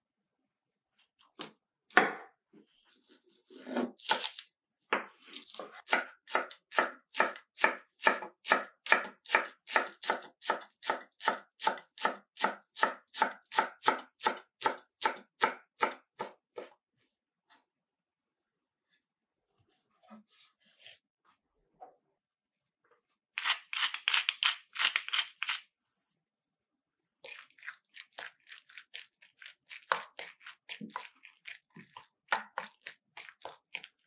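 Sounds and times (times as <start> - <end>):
knife chopping on cutting board: 5.8 - 16.7.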